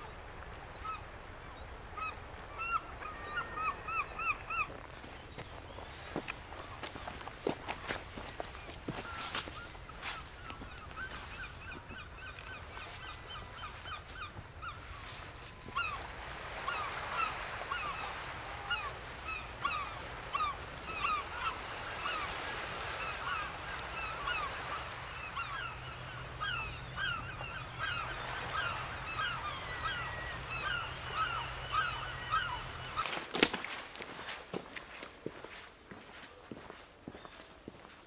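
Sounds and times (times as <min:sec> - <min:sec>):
flock of birds calling: 0:02.0 - 0:38.0.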